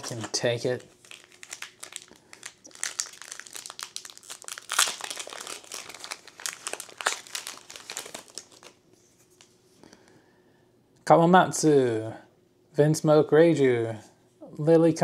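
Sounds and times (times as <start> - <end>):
foil pack crinkling and tearing: 0.0 - 8.8.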